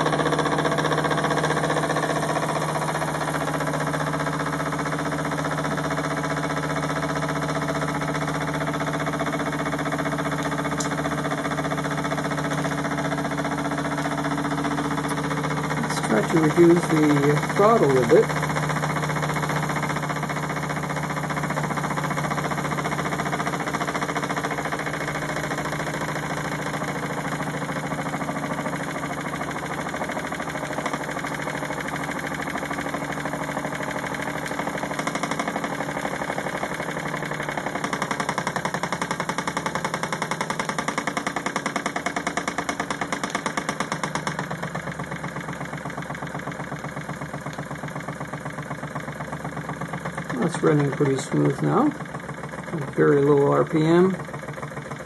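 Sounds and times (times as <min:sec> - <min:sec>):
toy steam engine beating: 0:10.8 - 0:44.8, 0:49.2 - 0:55.0.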